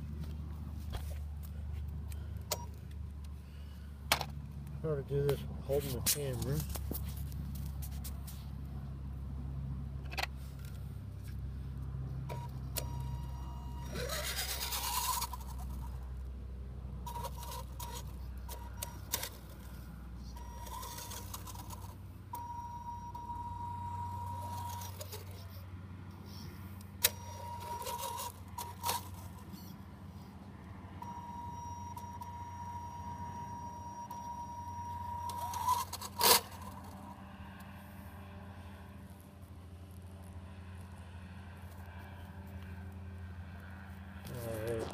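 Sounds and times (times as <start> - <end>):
toy car motor whine: 12.3 - 16.0, 17.0 - 25.5, 27.0 - 29.6, 31.0 - 37.1.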